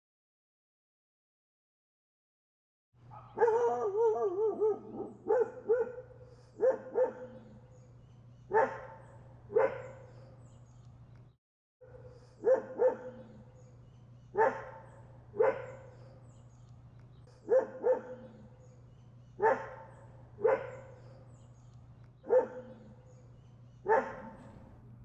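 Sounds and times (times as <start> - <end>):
dog barking: 3.1 - 7.6, 8.5 - 10.3, 11.8 - 13.5, 14.4 - 16.2, 17.4 - 18.5, 19.4 - 21.2, 22.3 - 23.0, 23.8 - 24.7
steady low hum: 12.0 - 25.0.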